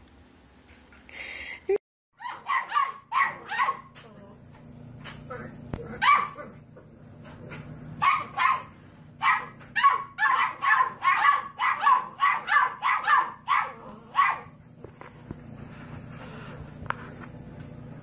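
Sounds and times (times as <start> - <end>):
puppy barking: 2.2 - 4.0, 5.8 - 6.6, 8.0 - 14.6.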